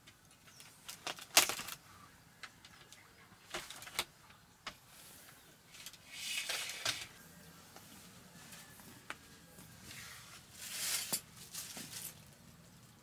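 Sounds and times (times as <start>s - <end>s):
rustle of dry thatch: 9.8s - 12.2s.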